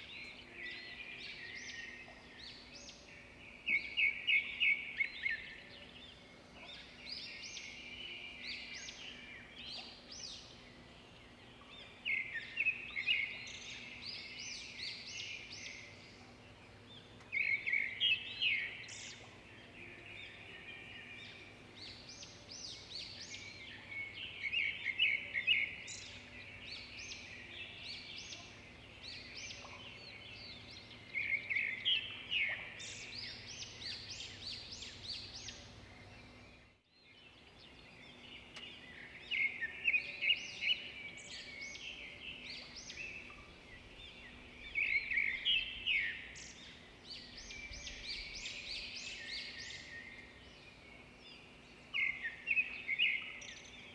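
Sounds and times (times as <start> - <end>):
birds singing and chirping: 0.0 - 53.9.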